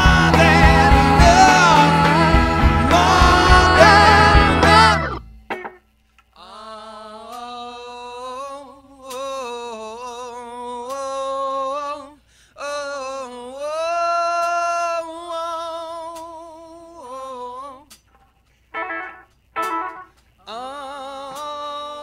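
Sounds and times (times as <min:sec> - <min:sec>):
voices singing unaccompanied: 0:00.0 - 0:05.2.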